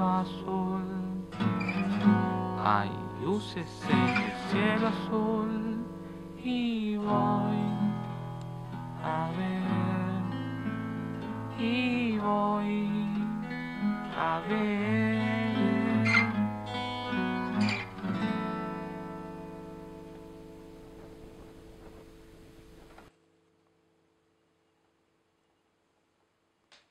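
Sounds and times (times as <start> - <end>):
person singing wordless melody: 0.0 - 17.8
acoustic guitar strumming: 0.0 - 23.1.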